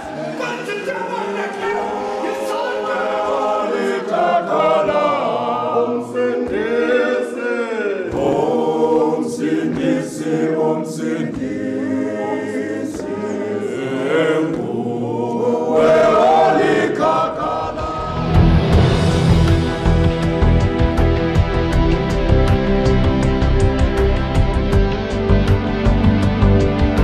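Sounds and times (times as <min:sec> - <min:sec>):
men singing in harmony: 0:01.2 - 0:20.0.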